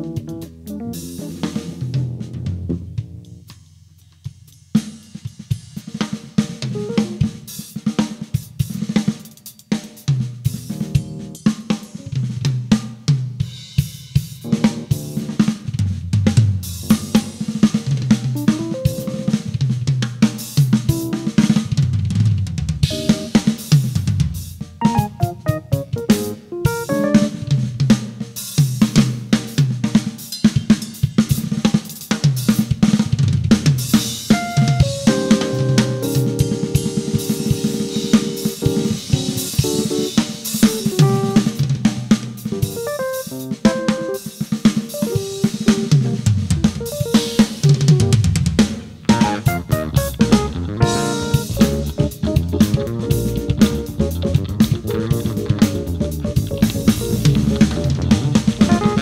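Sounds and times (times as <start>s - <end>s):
electric bass low notes: 0.0s - 3.4s, 49.1s - 59.0s
funk band music: 0.0s - 3.5s, 6.2s - 8.9s, 10.4s - 12.7s, 13.8s - 29.4s, 33.7s - 59.0s
drum kit fusion groove: 0.0s - 59.0s
higher melodic notes: 18.4s - 19.5s, 22.9s - 23.6s, 24.8s - 27.8s, 34.4s - 40.0s, 49.1s - 59.0s.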